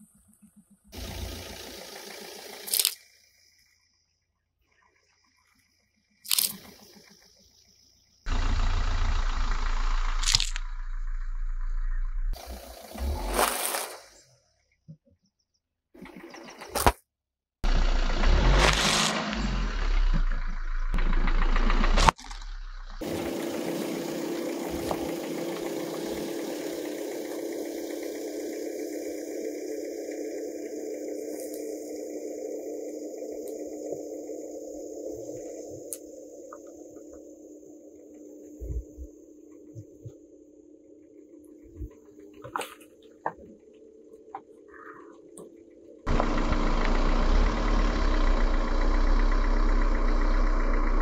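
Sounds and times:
car rolling on asphalt: 0.0 - 3.6, 6.4 - 13.4, 17.6 - 40.4, 45.3 - 51.0.

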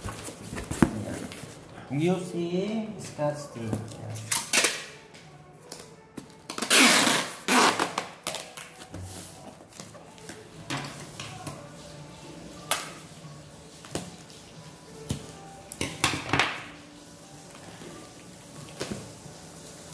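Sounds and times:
packing tape ripping off roll: 4.2 - 5.0, 5.7 - 9.0.

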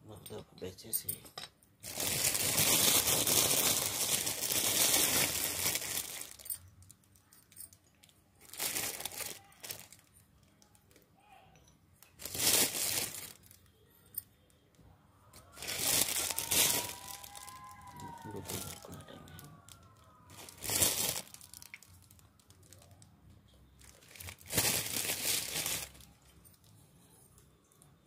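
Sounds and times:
rustling crinkling: 1.8 - 7.8, 8.4 - 10.2, 12.0 - 13.7, 15.4 - 26.8.

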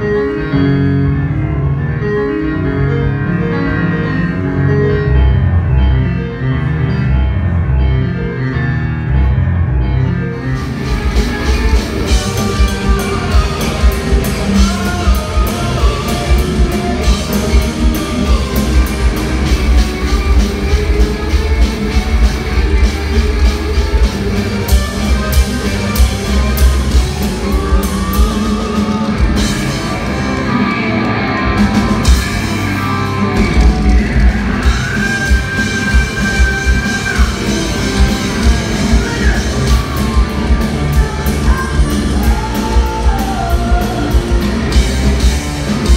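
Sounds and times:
bass guitar: 0.0 - 45.9
electric guitar: 0.0 - 45.9
pounding drum kit: 10.6 - 45.9.

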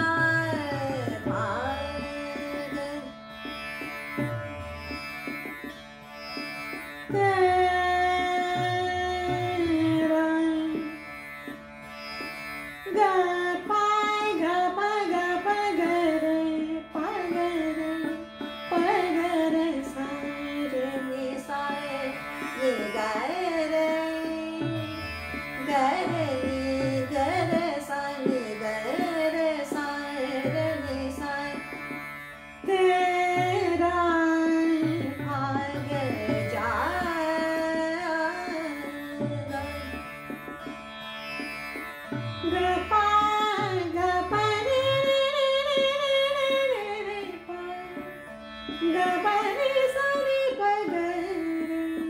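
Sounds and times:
woman singing: 0.0 - 3.1, 7.1 - 11.0, 12.9 - 24.9, 25.6 - 31.7, 32.6 - 40.0, 42.4 - 48.1, 48.8 - 52.0
tanpura drone: 0.0 - 52.0.

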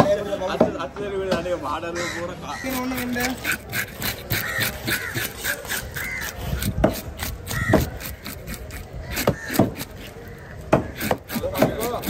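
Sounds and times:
knife scraping fish scales: 2.6 - 10.2, 10.8 - 12.0.

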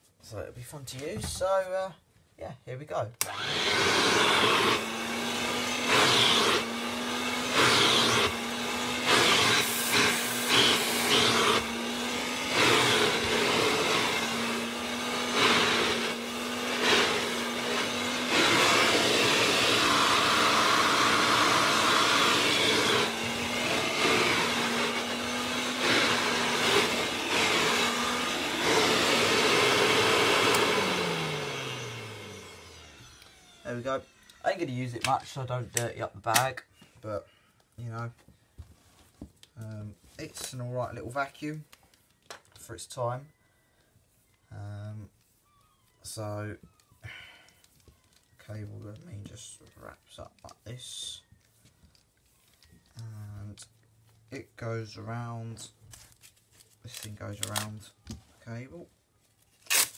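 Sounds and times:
hand-held vacuum cleaner running: 3.2 - 34.7
vacuum motor winding down: 3.2 - 34.7.

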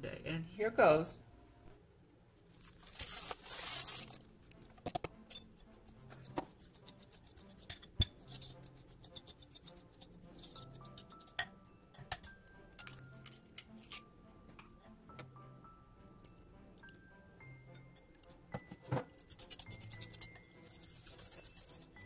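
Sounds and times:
faint background music: 0.0 - 22.0
spoon stirring dry mix: 5.6 - 11.4, 19.1 - 22.0.

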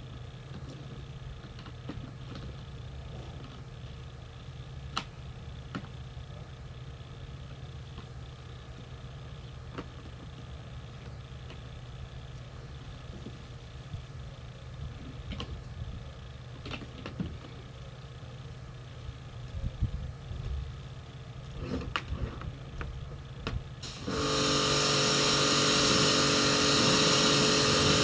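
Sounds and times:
pressure washer humming: 23.8 - 28.0.

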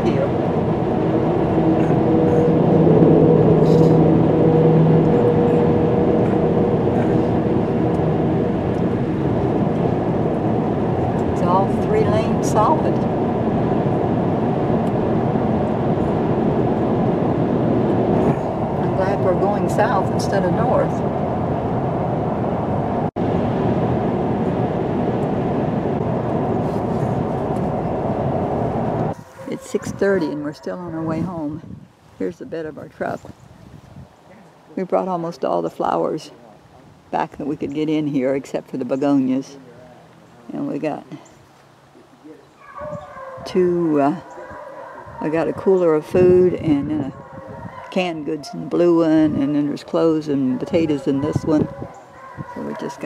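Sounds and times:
car road noise: 0.0 - 32.2
low hum: 0.0 - 42.4.

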